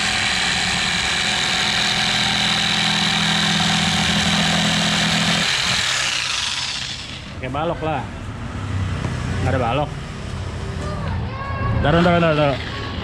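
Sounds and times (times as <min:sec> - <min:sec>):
jigsaw running: 0:00.0 - 0:07.4.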